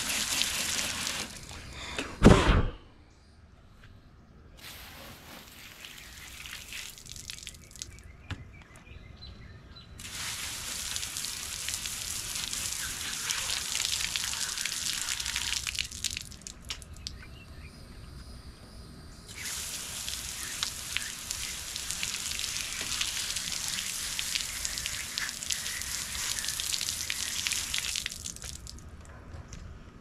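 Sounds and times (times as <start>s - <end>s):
water splattering onto concrete: 5.5s - 8.0s, 10.0s - 17.2s, 19.3s - 28.8s
hose spray nozzle hissing: 10.0s - 15.8s, 19.3s - 27.9s.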